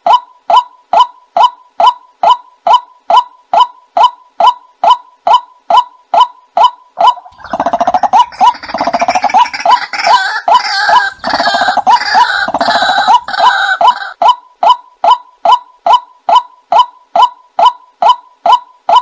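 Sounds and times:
harsh croaking gurgling chorus: 0:07.2 - 0:14.1.

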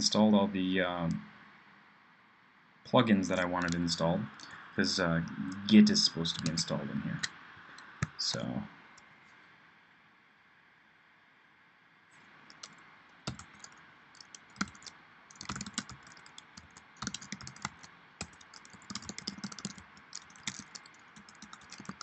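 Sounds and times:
typing on computer keyboard: 0:03.6 - 0:03.8, 0:06.3 - 0:06.6, 0:12.5 - 0:22.0.

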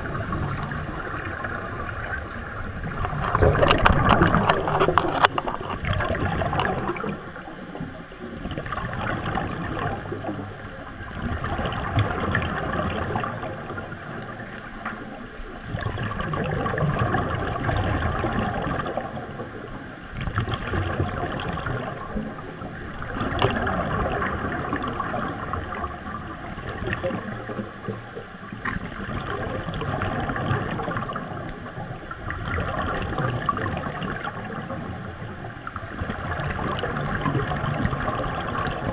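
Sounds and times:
underwater air bubbling and gurgling: 0:00.0 - 0:38.9.

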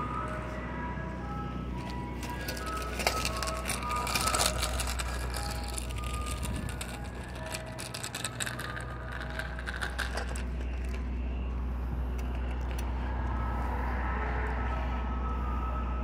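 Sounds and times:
low rumble: 0:00.0 - 0:16.0
bike rattling and clicking: 0:01.7 - 0:11.2, 0:12.2 - 0:12.9.

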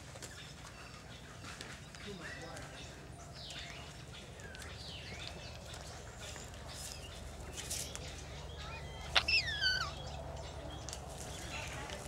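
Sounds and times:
parrots chirping and whistling: 0:08.9 - 0:10.1.

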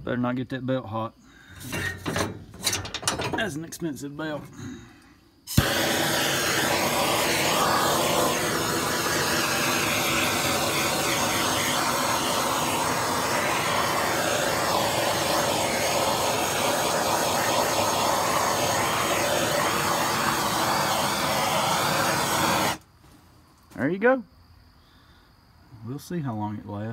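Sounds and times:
blowtorch flame hissing: 0:05.5 - 0:22.8.

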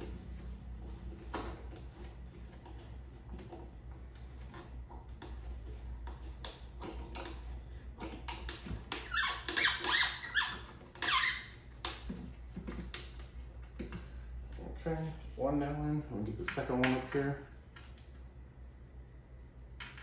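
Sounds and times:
screw squeaking into board: 0:08.9 - 0:11.6.

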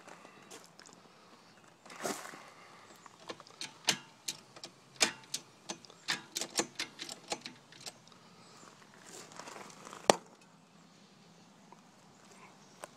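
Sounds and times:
metal shift linkage clicking: 0:03.2 - 0:08.0.

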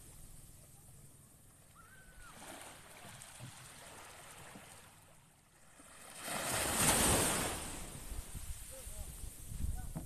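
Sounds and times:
waves washing onto beach: 0:02.1 - 0:09.5.

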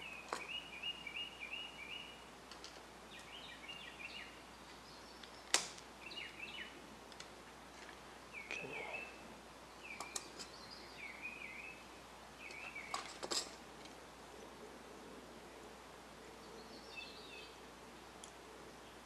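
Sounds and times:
small metal parts clicking: 0:12.9 - 0:13.6.

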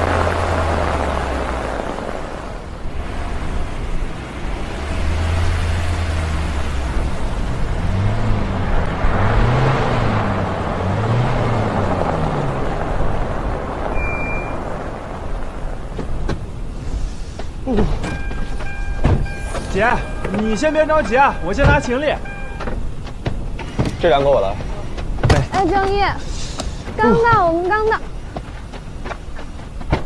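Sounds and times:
low engine hum: 0:00.0 - 0:30.0
wind and tyres rushing: 0:00.0 - 0:30.0
short high beep: 0:13.9 - 0:14.6, 0:18.0 - 0:22.7
car door clicks and knocks: 0:18.0 - 0:19.3, 0:22.6 - 0:24.0.

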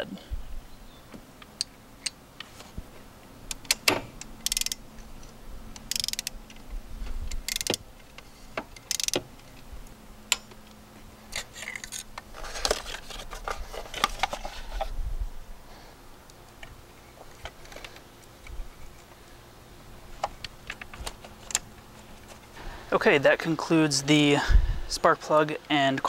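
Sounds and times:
ratchet clicking rapidly: 0:03.5 - 0:04.8, 0:05.7 - 0:06.6, 0:07.3 - 0:07.8, 0:08.8 - 0:09.2.

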